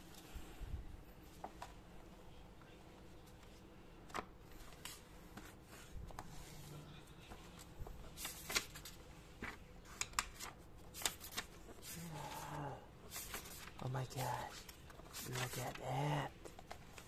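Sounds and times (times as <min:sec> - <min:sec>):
comic book pages turning: 0:03.4 - 0:17.0.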